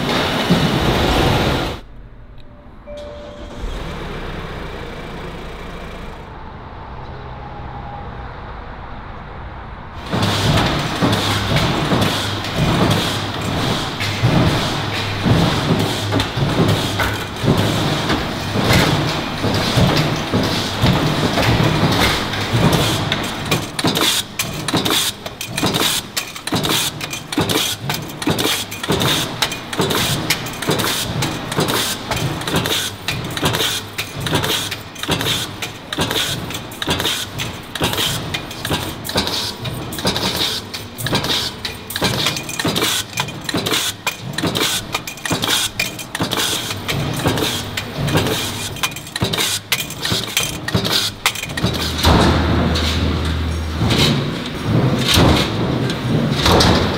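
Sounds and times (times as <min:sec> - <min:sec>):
stamping press metallic clatter: 0:10.0 - 0:56.9
clinking metal parts: 0:11.3 - 0:56.9.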